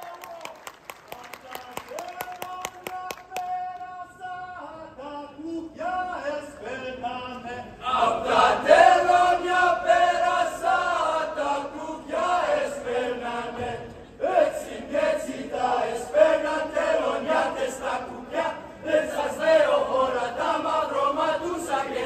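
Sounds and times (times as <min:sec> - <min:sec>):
group singing folk song in unison: 0:06.6 - 0:22.0.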